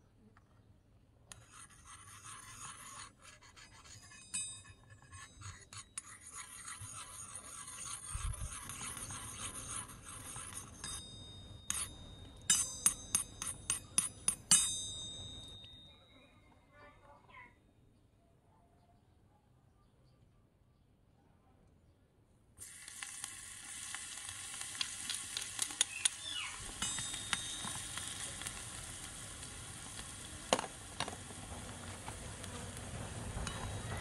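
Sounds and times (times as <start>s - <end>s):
spatula striking wok clinks: 10.8s - 15.8s, 26.6s - 28.6s.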